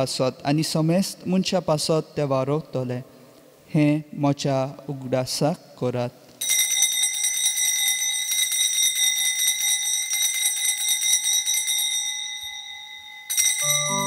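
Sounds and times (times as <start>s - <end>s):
altar bells jingling: 11.6s - 14.0s.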